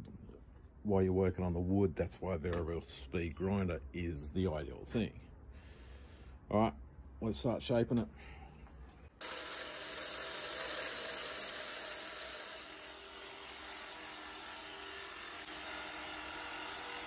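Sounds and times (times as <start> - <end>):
belt grinder sanding wood: 9.2 - 17.0.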